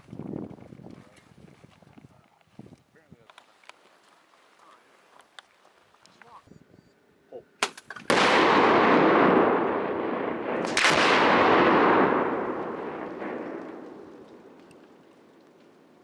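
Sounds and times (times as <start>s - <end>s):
explosive blasts: 8.0s - 16.0s.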